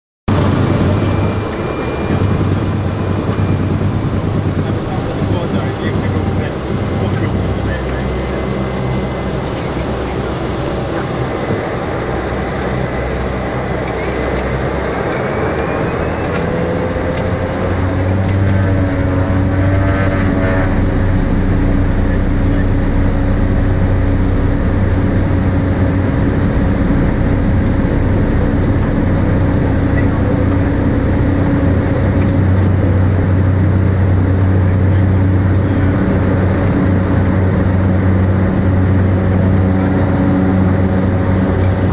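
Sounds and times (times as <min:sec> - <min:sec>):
turboprop engine whine: 0:00.3 - 0:41.9.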